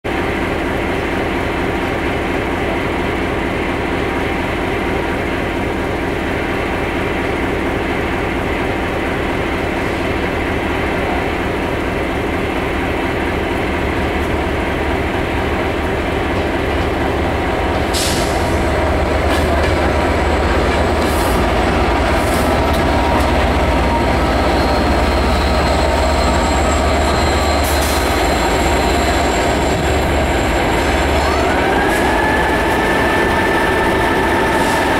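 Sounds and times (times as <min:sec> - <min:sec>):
diesel locomotive engine: 0:00.1 - 0:34.9.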